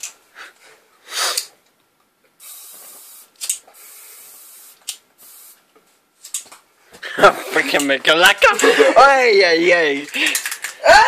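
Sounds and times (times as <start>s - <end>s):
aerosol spray can hissing: 2.4s - 5.6s.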